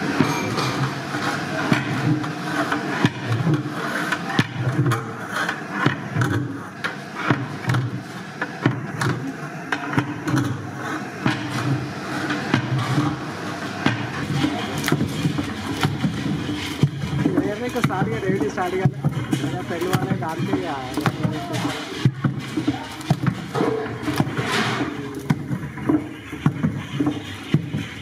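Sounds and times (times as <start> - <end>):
steady background din: 0.0 - 28.0
scraping in a cauldron: 10.5 - 28.0.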